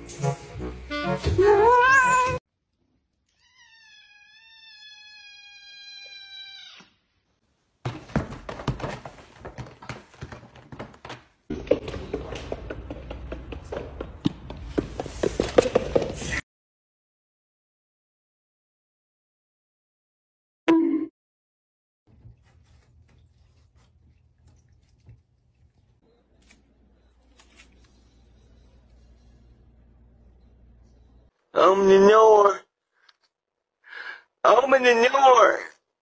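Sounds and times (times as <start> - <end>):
cat meowing: 1.7 - 2.4, 3.3 - 7.0.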